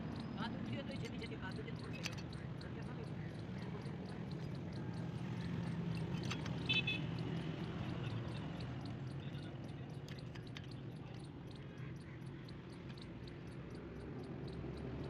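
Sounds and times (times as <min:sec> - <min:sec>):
faint fast ticking: 0:00.0 - 0:15.0
metal key tapping on bolts: 0:00.9 - 0:07.6, 0:09.1 - 0:14.2.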